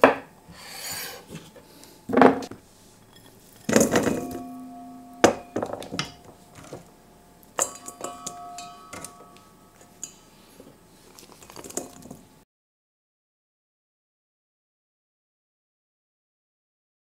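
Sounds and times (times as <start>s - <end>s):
knocks on ringing metal bowl: 3.7s - 6.9s, 7.6s - 9.9s.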